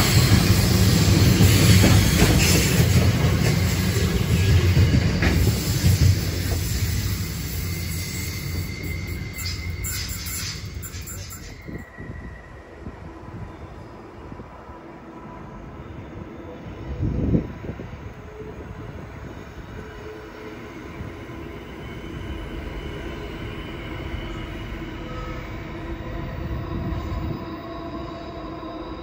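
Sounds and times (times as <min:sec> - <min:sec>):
freight train passing: 0:00.0 - 0:29.0
steady ringing tones: 0:07.8 - 0:12.7.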